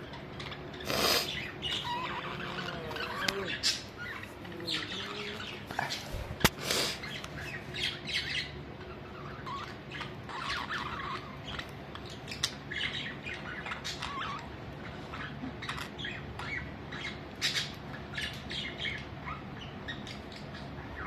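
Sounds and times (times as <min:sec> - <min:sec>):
budgerigars chattering: 0:00.0 - 0:21.0.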